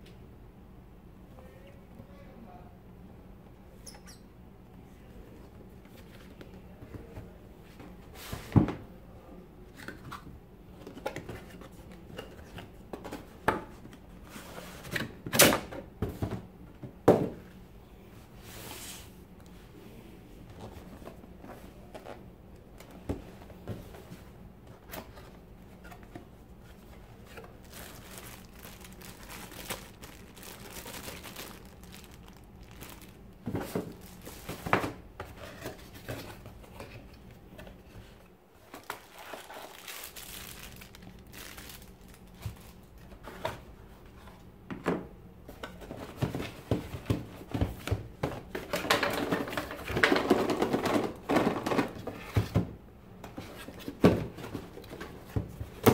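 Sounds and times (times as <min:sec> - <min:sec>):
cardboard rustling and crinkling: 0:22.8 - 0:44.4.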